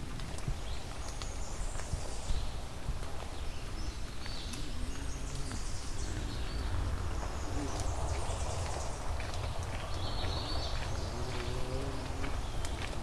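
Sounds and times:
birds chirping: 0:00.0 - 0:13.0.

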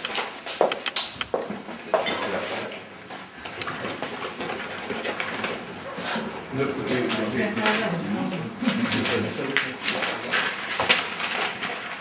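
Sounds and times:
sharp click: 0:00.0 - 0:01.3
papers rustling: 0:00.0 - 0:12.0.

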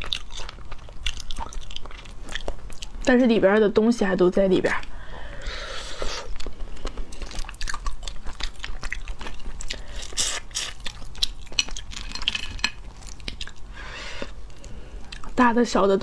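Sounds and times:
chewing and sucking: 0:00.0 - 0:03.1, 0:05.3 - 0:15.4
crayfish shells cracking: 0:06.3 - 0:13.7.

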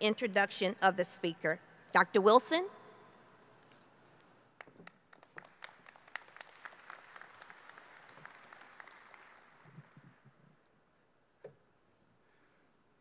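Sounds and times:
audience applause: 0:05.1 - 0:10.2.

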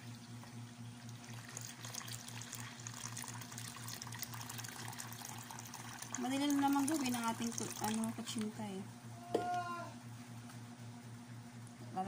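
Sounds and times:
water pouring into plastic bowl: 0:01.1 - 0:08.5.

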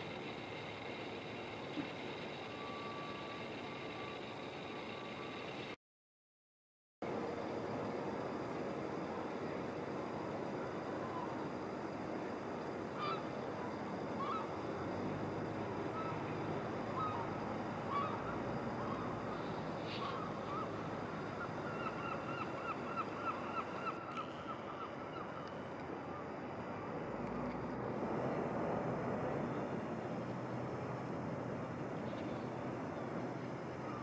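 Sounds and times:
steady background hum: 0:00.0 - 0:05.8, 0:07.0 - 0:34.0
birds calling: 0:17.9 - 0:25.6.

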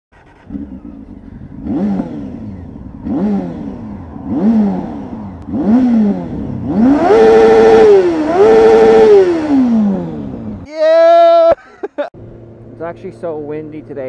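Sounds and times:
motorcycle engine revving: 0:00.1 - 0:10.7.

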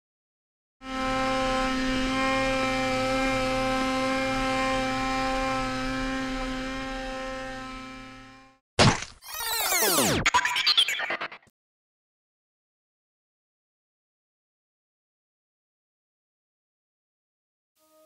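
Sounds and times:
snowmobile engine running: 0:00.9 - 0:08.6.

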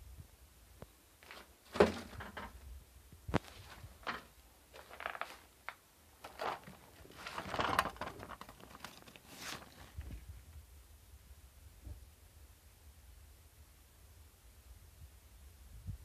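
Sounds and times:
crinkling rustles among debris: 0:01.2 - 0:02.6, 0:03.3 - 0:10.4.

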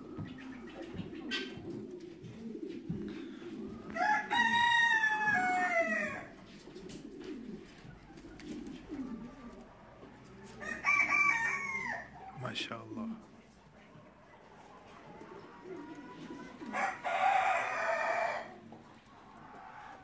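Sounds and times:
pigeon cooing: 0:00.0 - 0:12.4, 0:13.5 - 0:20.0
rooster crowing: 0:03.9 - 0:06.3, 0:10.6 - 0:12.2, 0:16.7 - 0:18.6.

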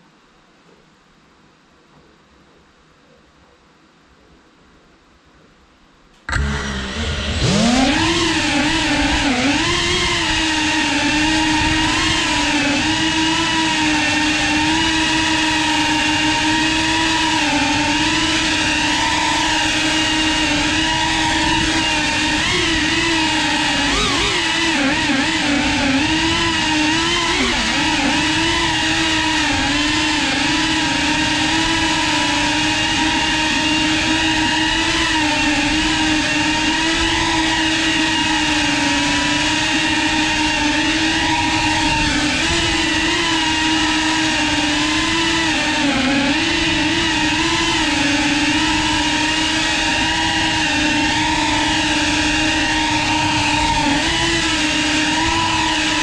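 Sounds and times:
drone motors whining: 0:06.2 - 0:56.0.

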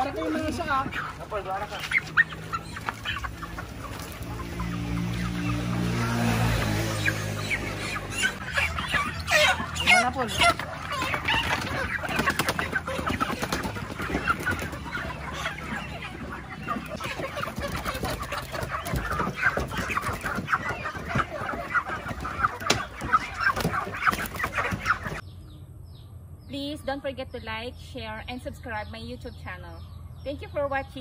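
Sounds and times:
chickens clucking and squawking: 0:00.0 - 0:31.0
wings flapping: 0:00.3 - 0:07.4, 0:10.5 - 0:25.2.

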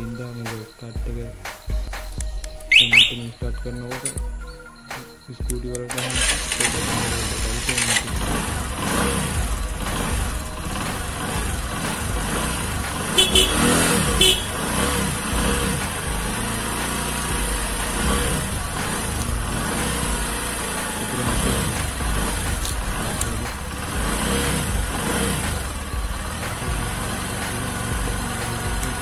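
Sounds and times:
motorcycle engine idling: 0:01.7 - 0:04.4, 0:05.9 - 0:29.0
short high beeps: 0:02.7 - 0:03.4.

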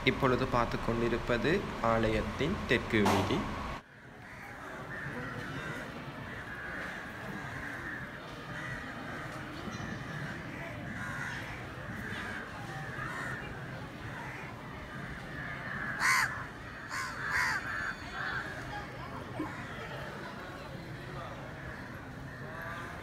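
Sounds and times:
steady background din: 0:00.0 - 0:03.9
crows cawing: 0:03.9 - 0:18.7, 0:21.5 - 0:23.0.

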